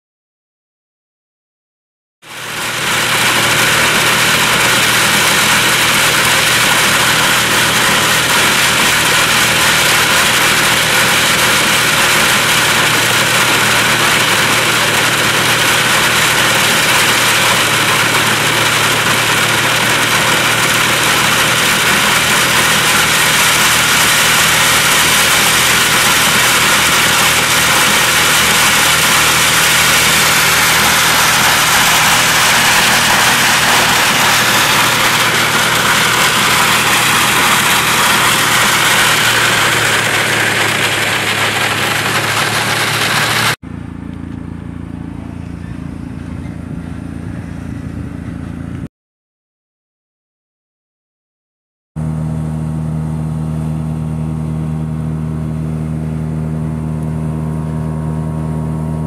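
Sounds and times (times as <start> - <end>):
tractor engine droning: 2.2 - 48.9
steady rushing hiss: 2.3 - 43.6.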